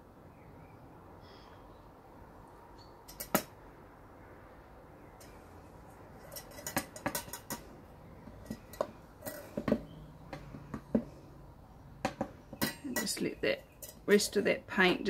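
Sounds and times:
metal cup clinking and knocking: 6.2s - 7.7s.

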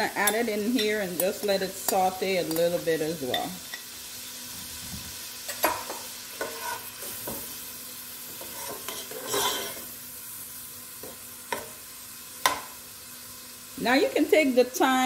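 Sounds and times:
onions sizzling in butter: 0.0s - 15.0s
spoon knocking and scraping pot: 5.5s - 7.6s, 8.3s - 9.9s, 11.0s - 11.8s, 12.4s - 12.8s.

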